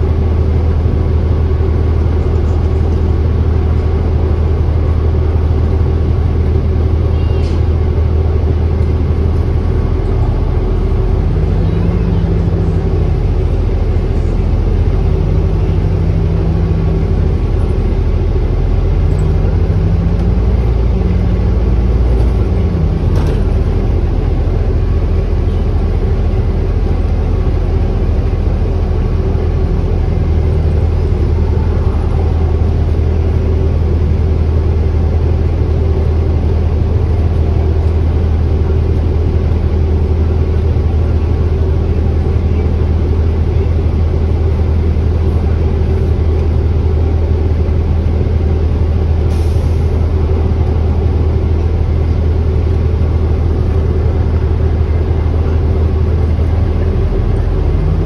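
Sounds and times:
bus drivetrain and road rumble: 0:00.0 - 0:58.0.

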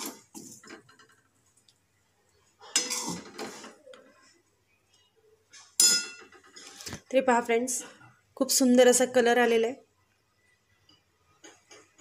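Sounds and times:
spoon scraping a plate: 0:02.6 - 0:03.8.

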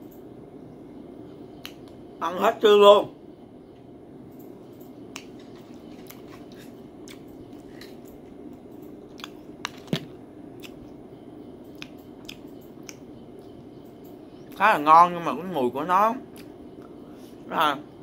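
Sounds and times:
low hum: 0:00.0 - 0:18.0
man chewing: 0:04.7 - 0:11.0, 0:11.6 - 0:13.6.

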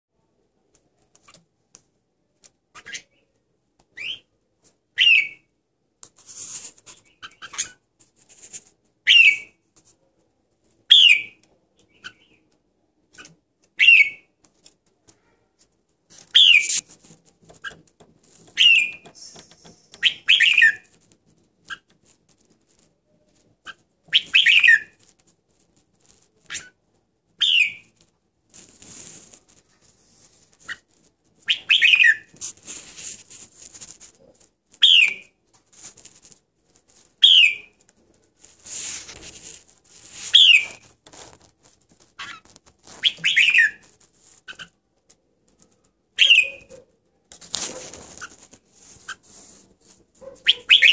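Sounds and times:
soft rustling: 0:06.0 - 0:09.0, 0:14.4 - 0:23.9, 0:24.6 - 0:27.0, 0:27.8 - 0:46.1, 0:46.7 - 0:50.8
bird chirping calls: 0:16.3 - 0:16.9, 0:18.6 - 0:20.9, 0:31.5 - 0:32.3, 0:43.0 - 0:43.9, 0:46.2 - 0:46.8, 0:50.2 - 0:50.9.

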